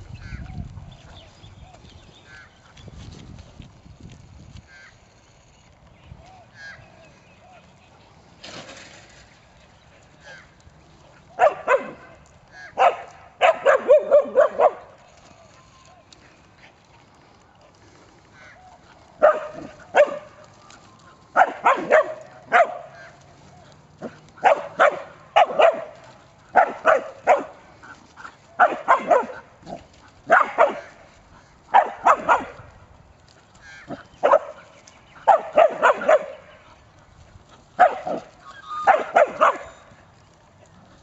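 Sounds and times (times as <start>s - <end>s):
dog barking sharply: 11.4s - 12.1s, 12.8s - 14.8s, 19.2s - 20.3s, 21.4s - 23.1s, 24.4s - 25.9s, 26.6s - 27.5s, 28.6s - 29.4s, 30.3s - 31.0s, 37.8s - 38.2s.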